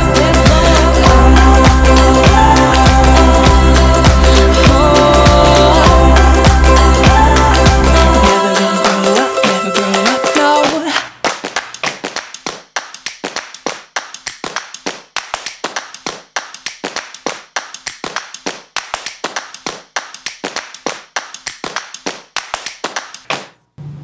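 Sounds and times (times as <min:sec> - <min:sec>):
sparse hand clapping: 0:08.6 - 0:23.6.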